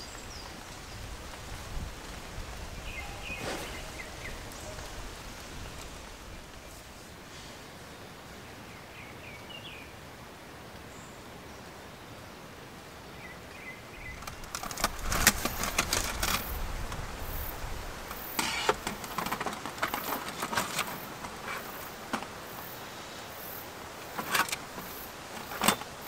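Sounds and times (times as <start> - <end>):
steady rain falling: 0.0 - 26.0
rustling camp gear: 0.3 - 7.7, 14.0 - 26.0.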